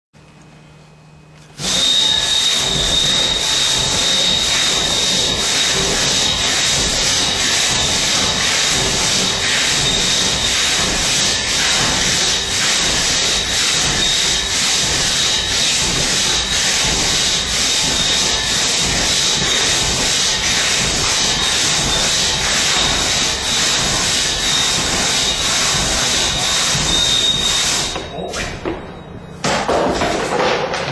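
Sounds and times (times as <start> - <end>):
crosscut saw rasping through log: 1.6 - 28.0.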